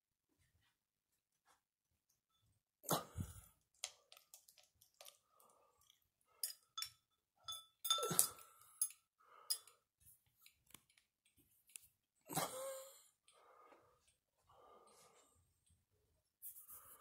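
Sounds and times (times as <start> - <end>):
glass shades clinking: 6.4 - 9.6
glass clatter with ringing: 6.4 - 9.7.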